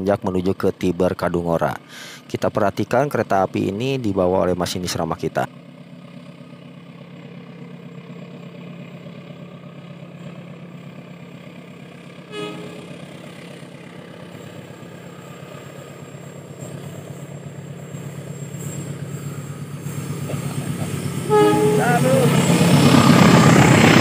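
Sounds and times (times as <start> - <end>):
locomotive engine drone: 0.0 - 24.0
train horn toot: 12.2 - 13.6, 21.2 - 22.8.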